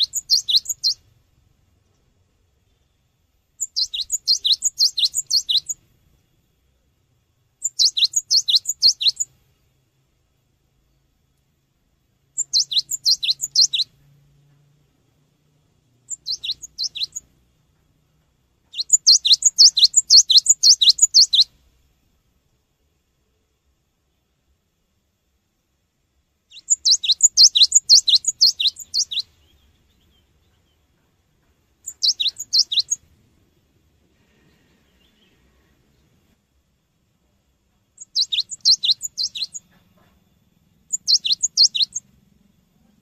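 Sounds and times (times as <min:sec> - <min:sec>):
bird singing high repeated notes: 0:00.0 - 0:01.1, 0:02.7 - 0:05.9, 0:07.6 - 0:09.4, 0:12.3 - 0:14.2, 0:16.0 - 0:17.3, 0:18.7 - 0:21.6, 0:26.5 - 0:30.8, 0:31.8 - 0:33.1, 0:37.9 - 0:39.8, 0:40.8 - 0:42.1.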